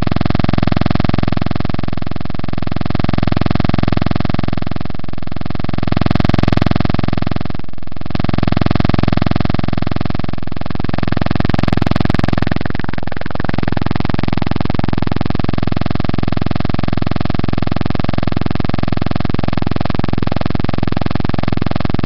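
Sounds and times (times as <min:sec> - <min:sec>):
loud electronic buzz over hiss: 0:00.0 - 0:22.0.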